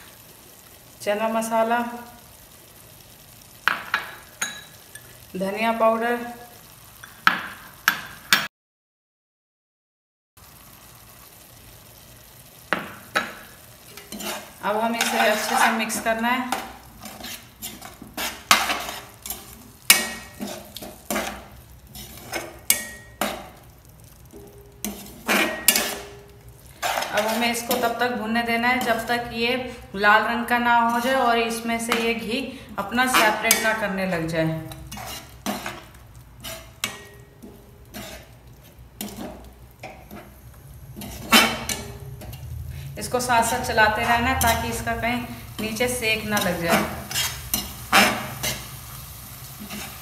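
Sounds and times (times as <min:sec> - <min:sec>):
masala frying: 0:00.0 - 0:08.5, 0:10.4 - 0:50.0
metal spatula scraping steel pan: 0:13.9 - 0:23.6, 0:24.3 - 0:28.1, 0:33.0 - 0:33.8, 0:34.7 - 0:48.9, 0:49.6 - 0:50.0.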